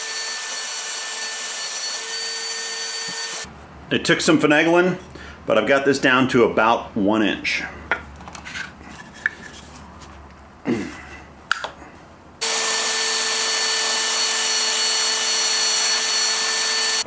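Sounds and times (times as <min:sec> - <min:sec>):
belt sander sanding wood: 0:12.4 - 0:17.0.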